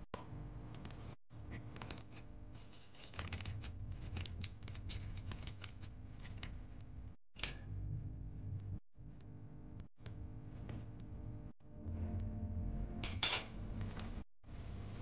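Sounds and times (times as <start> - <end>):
steady low hum: 5.8 - 15.0.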